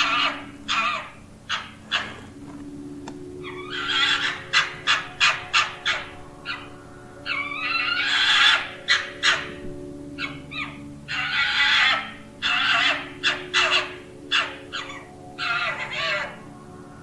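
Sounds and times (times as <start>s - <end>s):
harsh animal calls: 0.0s - 2.4s, 3.4s - 9.6s, 10.2s - 16.5s.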